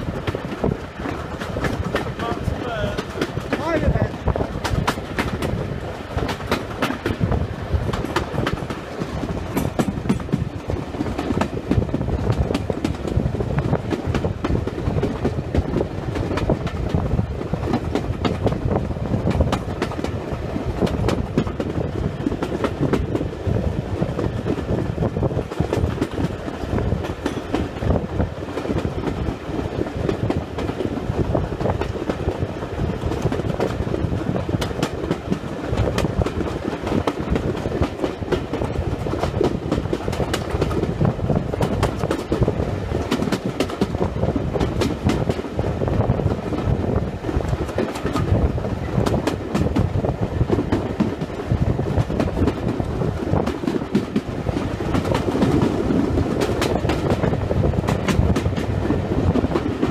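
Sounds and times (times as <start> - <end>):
train running noise: 0.0 - 59.9
wheels clattering over rails: 24.5 - 32.4.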